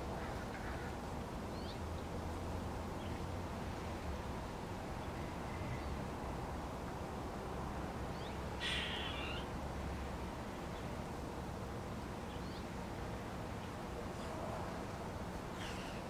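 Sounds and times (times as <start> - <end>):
garden birds calling: 1.5 - 2.2, 8.1 - 9.6, 15.4 - 16.0
rough bird call: 8.6 - 9.5.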